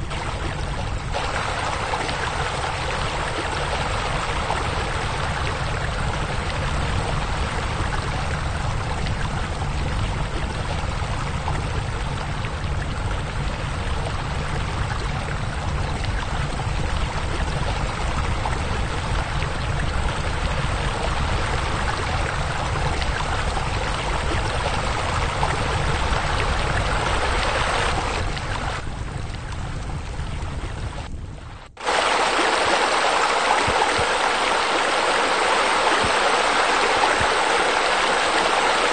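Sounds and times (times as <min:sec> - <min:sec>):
splashing water: 0:00.0 - 0:31.1, 0:31.8 - 0:38.9
low rumble: 0:00.0 - 0:32.6.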